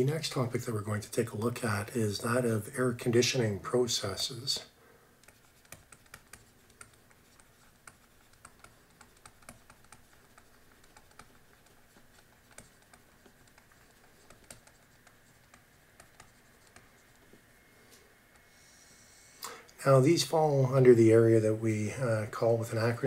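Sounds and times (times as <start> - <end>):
stylus tapping on pen tablet: 5.2 - 17.2.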